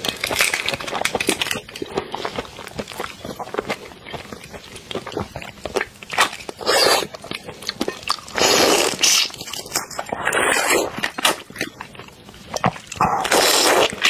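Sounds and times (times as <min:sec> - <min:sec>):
loud sucking at shrimp: 0:08.3 - 0:09.3.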